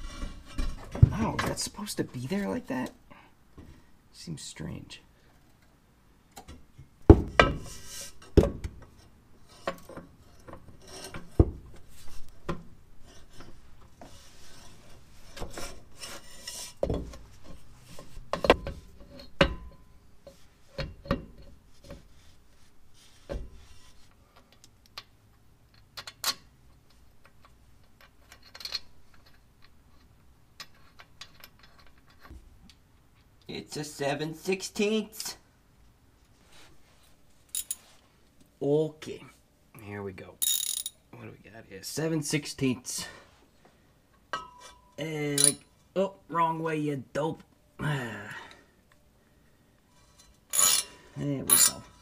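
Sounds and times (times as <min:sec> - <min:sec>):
metal scraping: 0:49.9 - 0:52.0.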